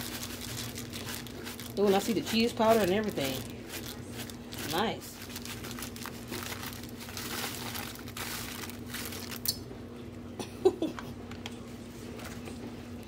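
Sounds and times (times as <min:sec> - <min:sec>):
plastic pouch rustling: 0:00.0 - 0:09.5.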